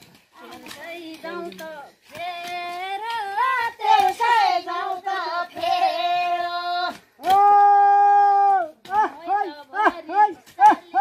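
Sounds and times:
high voice singing unaccompanied: 0:00.4 - 0:07.6.

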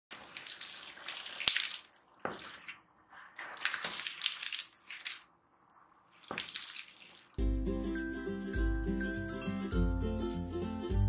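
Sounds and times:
crunchy slime crackling: 0:03.3 - 0:05.3.

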